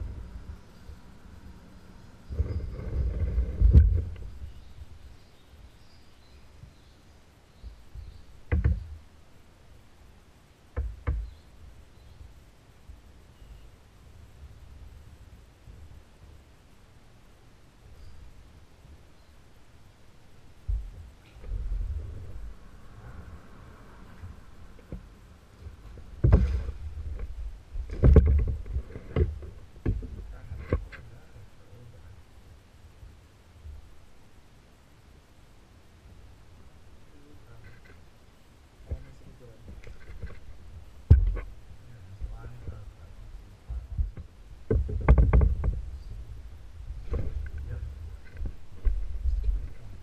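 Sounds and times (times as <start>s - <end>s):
wind rumble on microphone: 0.0s - 5.4s, 20.5s - 34.0s, 38.8s - 50.0s.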